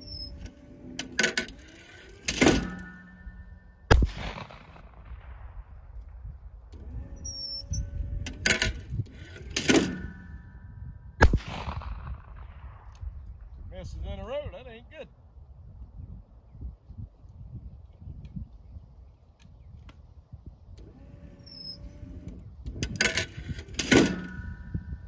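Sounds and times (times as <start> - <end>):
loud clatter with ringing tone: 0.0 - 5.0, 8.4 - 10.8
shotgun shots: 2.2 - 6.3, 11.2 - 13.2.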